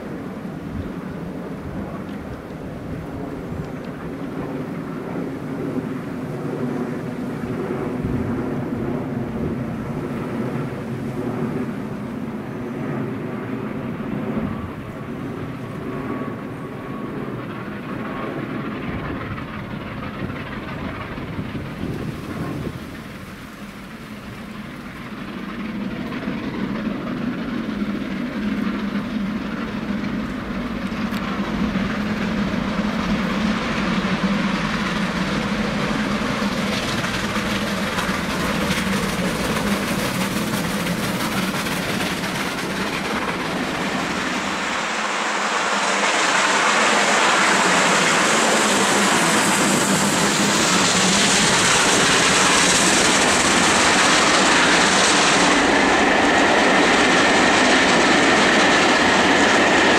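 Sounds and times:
steam locomotive approaching: 0.0s - 59.9s
hissing steam rush: 14.4s - 59.9s.

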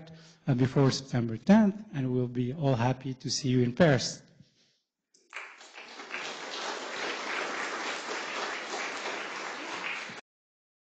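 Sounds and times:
audience applauding: 5.3s - 10.2s.

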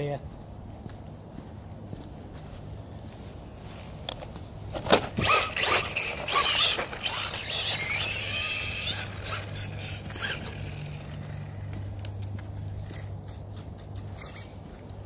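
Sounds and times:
sharp clattering and scraping: 4.1s - 15.0s
electric motor whining: 5.1s - 11.7s.

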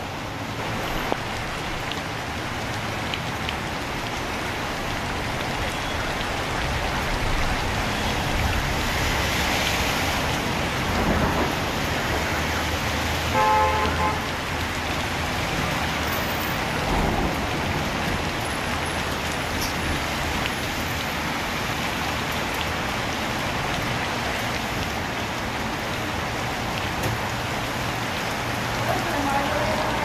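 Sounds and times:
cars driving on wet road: 0.0s - 30.0s
rain falling on street: 0.0s - 30.0s.

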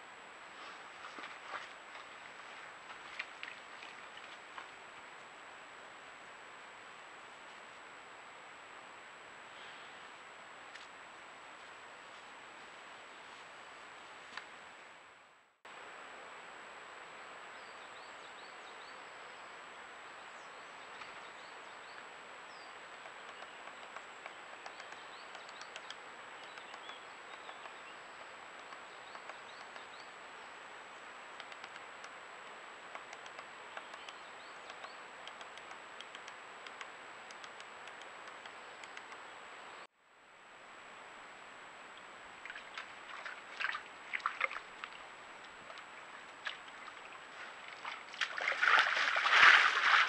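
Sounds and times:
faint high electronic whine: 0.0s - 50.0s
steady camera hiss: 4.4s - 47.8s
woodpecker tapping on bark: 22.9s - 30.0s.

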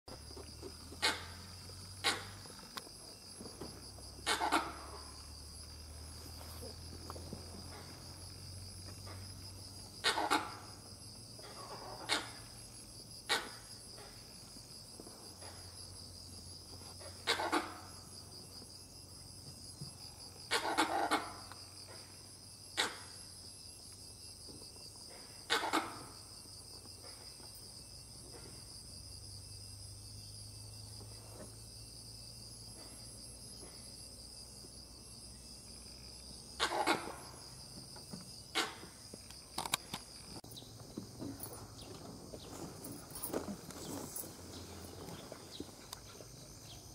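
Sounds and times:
insects buzzing: 0.1s - 46.9s
monkey alarm barks: 4.2s - 5.0s, 10.0s - 10.7s, 17.1s - 17.9s, 20.5s - 21.5s, 22.8s - 23.1s, 25.5s - 26.1s, 36.6s - 37.2s.

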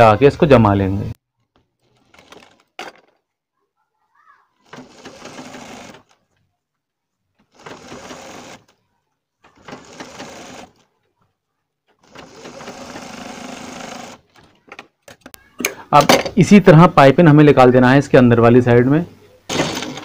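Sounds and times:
sewing machine stitching: 1.8s - 2.8s, 4.6s - 6.2s, 7.5s - 8.8s, 9.4s - 10.8s, 12.0s - 14.5s.

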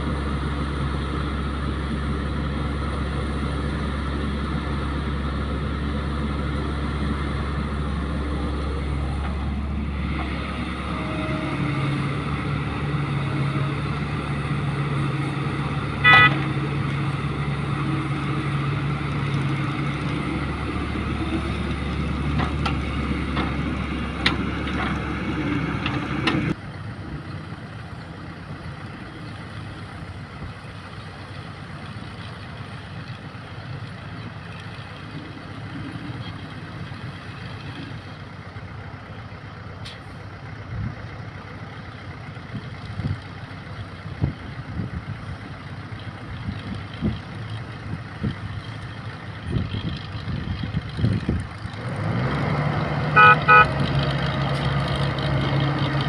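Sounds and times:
excavator diesel engine running: 0.0s - 56.0s
short horn beep: 16.0s - 16.5s, 53.2s - 53.7s.

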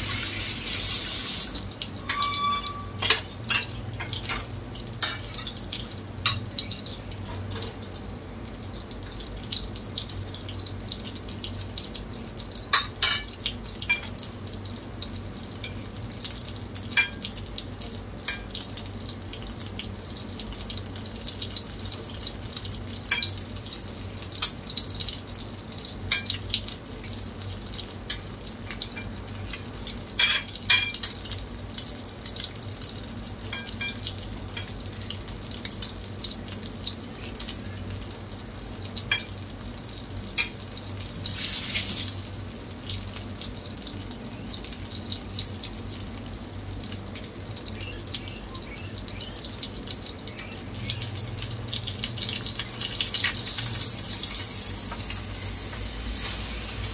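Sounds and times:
oil hissing spurt: 0.0s - 1.7s, 41.3s - 42.2s, 55.8s - 56.9s
food frying in oil: 0.0s - 56.9s.

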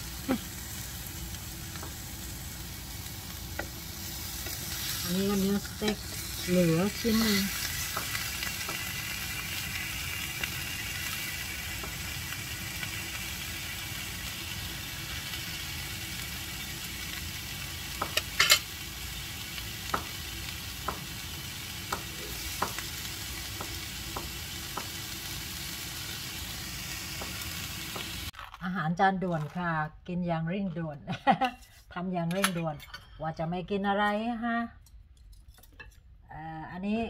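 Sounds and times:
sausages sizzling in a pan: 0.0s - 28.4s.

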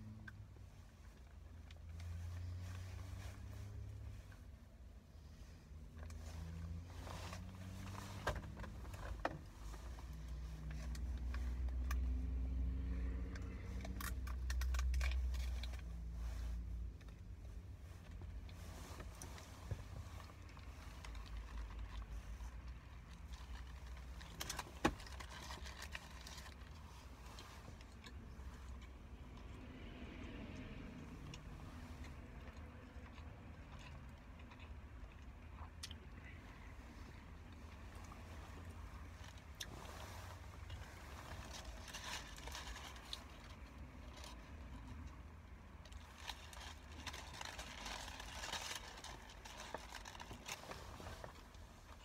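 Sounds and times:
low rumble inside car: 0.0s - 52.0s
food wrapper clicks and rustles: 13.4s - 15.8s, 20.3s - 27.4s, 41.3s - 45.0s, 45.8s - 51.5s
sandwich wrappers crinkling: 40.6s - 44.4s, 45.9s - 51.5s.

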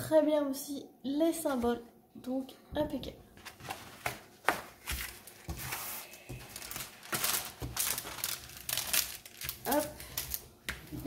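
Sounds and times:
plastic film crinkling: 3.4s - 11.0s.

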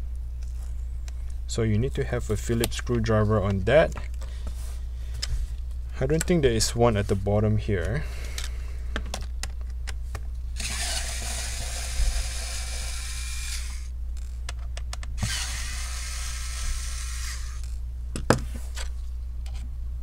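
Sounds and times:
electric screwdriver running: 10.6s - 13.9s, 15.2s - 17.8s.

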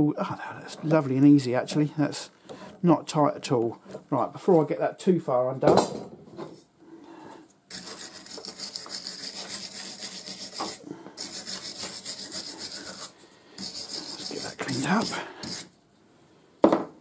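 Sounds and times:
stiff brush scrubbing metal: 7.7s - 15.7s.

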